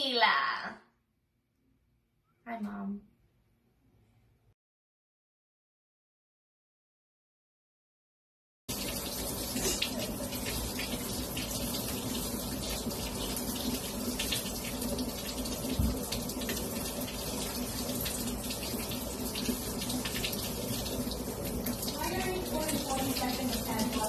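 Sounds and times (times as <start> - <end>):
hands washing under water: 8.8 - 24.0
tap running: 8.8 - 24.0.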